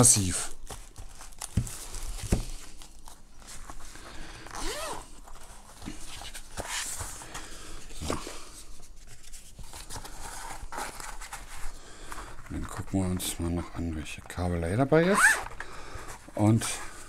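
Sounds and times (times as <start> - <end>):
rustling: 0.2 - 17.0
zipper rasps: 4.5 - 5.1, 15.0 - 15.6.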